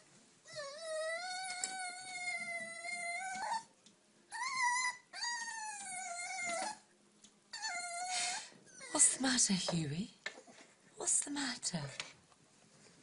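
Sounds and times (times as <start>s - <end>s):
puppy whining: 0.4s - 6.9s, 7.5s - 9.2s.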